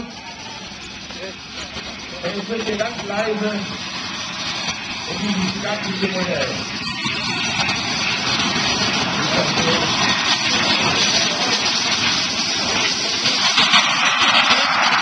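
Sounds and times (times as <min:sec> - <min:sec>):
model jet engines roaring: 0:00.0 - 0:15.0.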